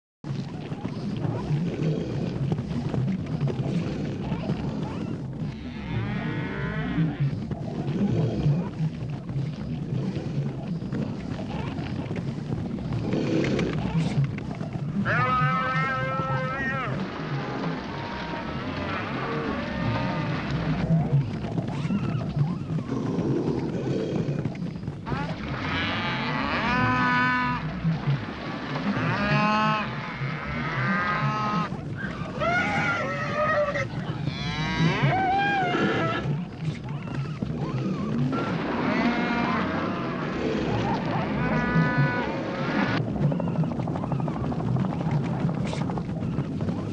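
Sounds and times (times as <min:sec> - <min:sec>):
low rumble: 0:00.3 - 0:46.9
cattle mooing: 0:05.5 - 0:07.4, 0:15.0 - 0:20.9, 0:25.1 - 0:27.8, 0:28.8 - 0:43.0
wild animal cries: 0:29.0 - 0:42.7
pitched animal call: 0:29.0 - 0:43.6.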